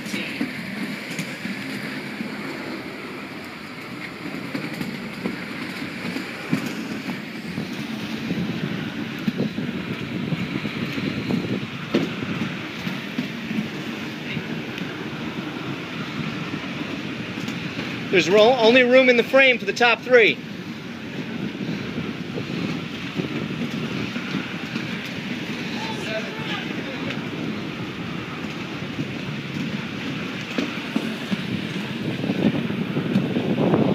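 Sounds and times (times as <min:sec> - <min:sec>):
skate wheels rumbling on floor: 0:03.7 - 0:33.9.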